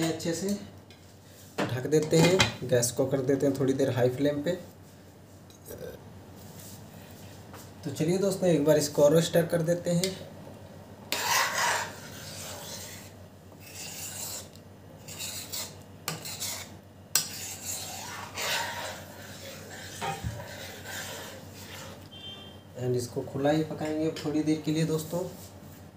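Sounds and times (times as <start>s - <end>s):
ladle scraping through thick pan: 11.2s - 14.5s, 15.1s - 22.0s.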